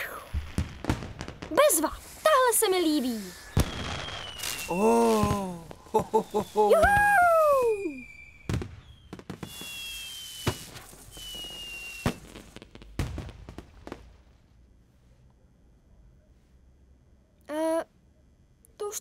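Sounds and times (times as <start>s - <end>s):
firework bangs: 0.0s - 14.3s
rockets whistling: 0.1s - 12.6s.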